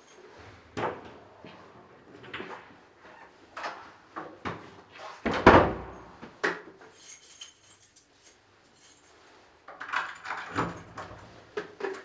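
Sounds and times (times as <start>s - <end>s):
metallic clinking and jingling: 6.9s - 9.3s.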